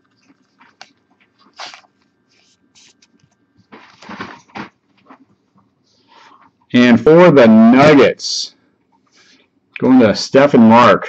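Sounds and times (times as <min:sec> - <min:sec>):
cards and plastic sleeves rustling: 0:00.0 - 0:05.4.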